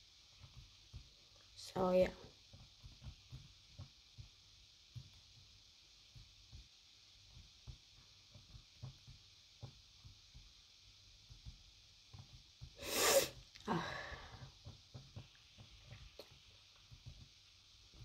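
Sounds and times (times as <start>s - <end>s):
woman sneezing: 12.8s - 13.8s.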